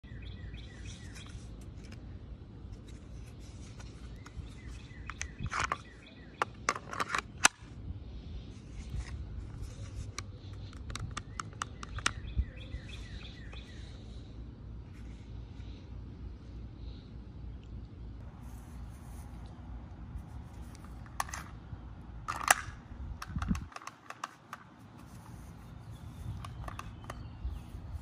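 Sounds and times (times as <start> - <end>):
birds chirping: 0.0 - 1.9, 2.9 - 6.7, 9.6 - 22.2, 23.5 - 28.0
pistol scraping in plastic holster: 2.7 - 7.7, 20.2 - 21.6, 22.2 - 28.0
holster clicks: 22.3 - 24.7.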